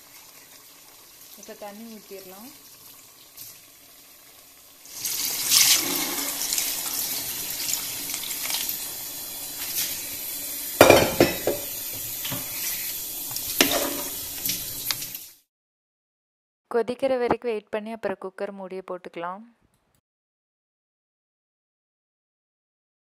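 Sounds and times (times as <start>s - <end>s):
water splashing into pot: 4.8s - 15.3s.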